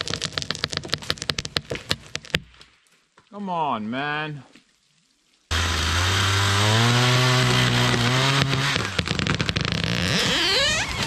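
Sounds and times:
tree cracking and falling: 0.0s - 2.6s, 5.6s - 11.0s
chainsaw running hard: 5.5s - 10.6s.

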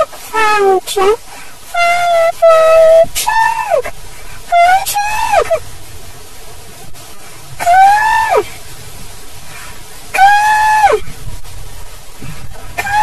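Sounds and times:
high-pitched vocal cries: 0.0s - 5.6s, 7.6s - 8.5s, 10.2s - 11.0s, 12.8s - 13.0s.

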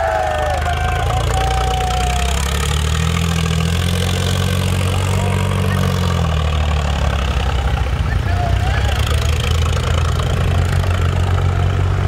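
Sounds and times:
tractor diesel engine rumbling: 0.0s - 12.0s.

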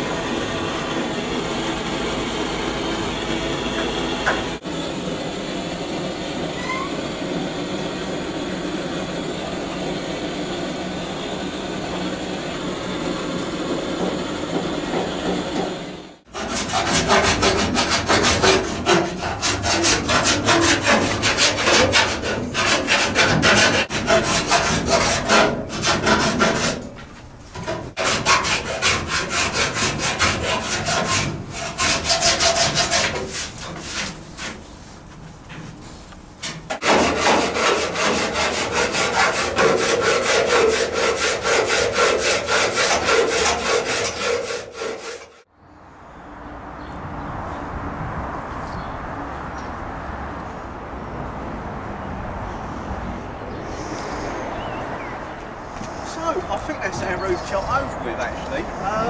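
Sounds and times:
rasping hand strokes: 16.3s - 36.1s, 36.8s - 45.4s.

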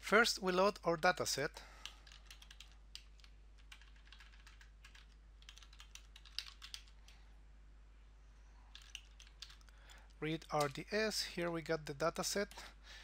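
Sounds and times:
faint typing on a keyboard: 1.0s - 7.2s, 8.7s - 11.0s, 12.4s - 12.8s.

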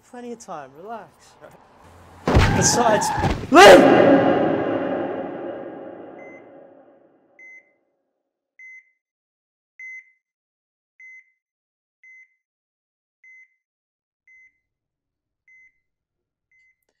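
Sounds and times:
loud noise tail: 2.6s - 6.8s.

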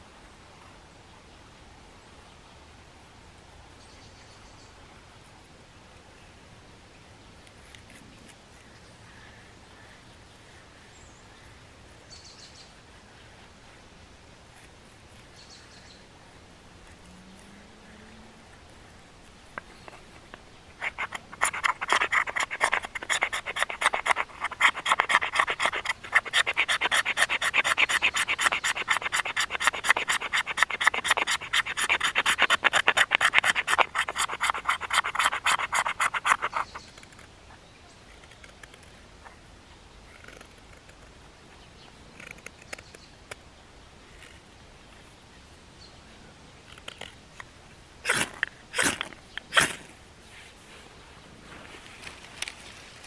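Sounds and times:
knife scraping wood: 7.4s - 8.6s, 18.7s - 37.3s, 48.1s - 49.9s.

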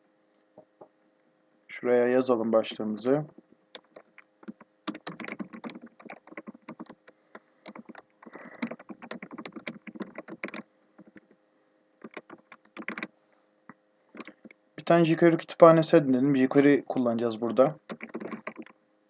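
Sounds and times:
typing on keyboard: 3.8s - 11.4s, 12.0s - 13.1s, 14.2s - 14.6s, 17.8s - 18.8s.

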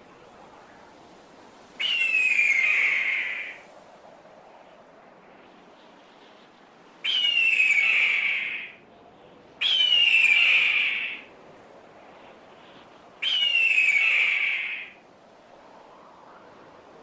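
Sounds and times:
bird of prey screaming: 7.1s - 8.8s, 9.6s - 11.2s, 13.2s - 15.0s.

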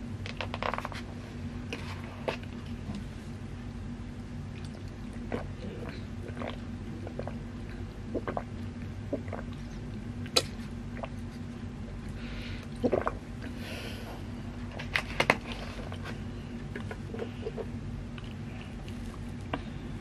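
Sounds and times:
mouth chewing: 4.5s - 13.6s, 16.7s - 19.7s
swallowing: 4.5s - 14.3s, 15.4s - 20.0s.

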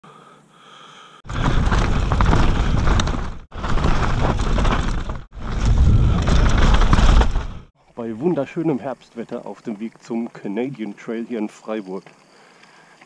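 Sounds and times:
bike rattling over bumps: 1.2s - 7.7s
tyres rolling over dirt: 1.2s - 7.7s
wind rushing over microphone: 5.0s - 7.7s.

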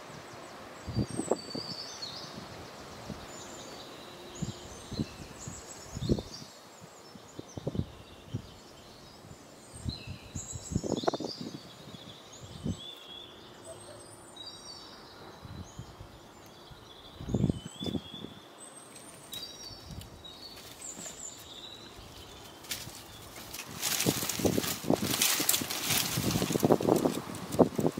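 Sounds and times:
small birds chirping: 0.0s - 27.9s
dry twigs rustling and cracking: 18.9s - 27.9s.

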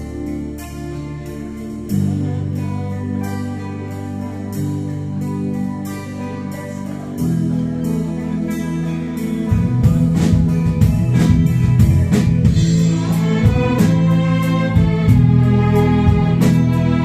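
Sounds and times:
bowed violins and cellos: 0.0s - 10.8s, 12.5s - 17.0s
rock band playing: 0.0s - 17.0s
drum hits: 9.6s - 15.4s.

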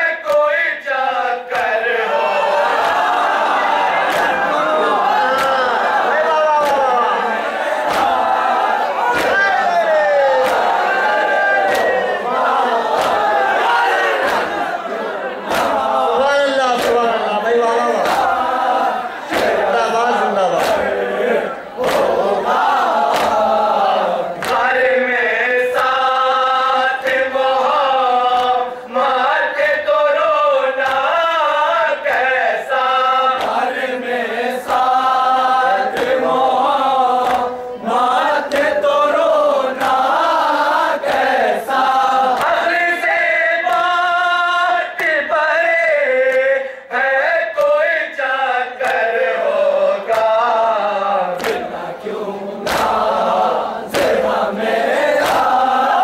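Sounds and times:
men chanting in unison: 0.0s - 56.0s
sharp slaps: 0.2s - 0.6s, 1.5s - 1.8s, 3.9s - 14.8s, 15.4s - 21.1s, 21.7s - 25.0s, 25.6s - 28.7s, 30.8s - 31.2s, 33.1s - 33.8s, 34.6s - 44.0s, 48.8s - 50.4s, 51.3s - 51.8s, 52.6s - 56.0s.

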